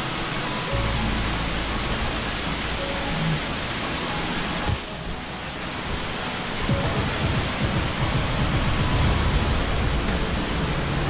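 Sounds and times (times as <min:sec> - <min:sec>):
water rushing hiss: 0:00.0 - 0:11.0
low rumbling: 0:00.8 - 0:11.0.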